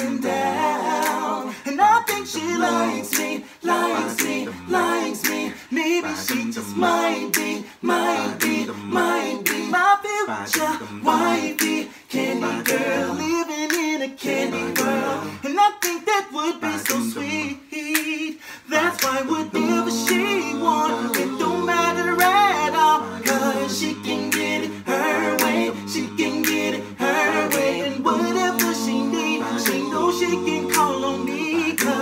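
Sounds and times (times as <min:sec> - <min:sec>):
sharp clicks keeping a beat: 0:00.0 - 0:01.4, 0:02.1 - 0:09.8, 0:10.5 - 0:12.9, 0:16.8 - 0:17.2, 0:19.0 - 0:32.0
male a cappella group singing: 0:00.0 - 0:32.0.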